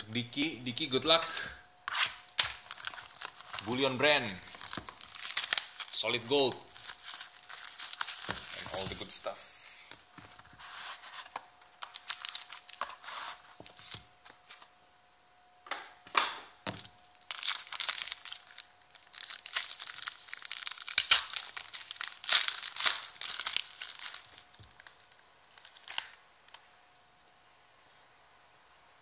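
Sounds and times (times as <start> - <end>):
foil wrapper crinkling and tearing: 1.2 - 9.3, 10.0 - 14.1, 16.7 - 26.7.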